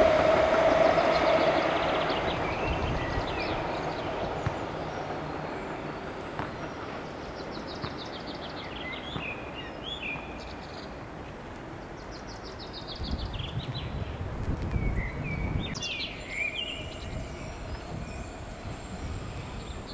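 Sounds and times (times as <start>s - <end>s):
train rumble: 0.0s - 9.8s, 13.0s - 19.9s
songbird trilling and chirping: 14.8s - 19.9s.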